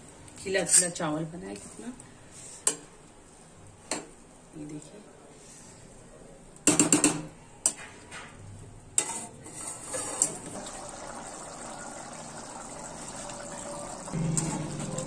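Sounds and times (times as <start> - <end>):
steel spoon scraping a pot: 9.0 - 10.4.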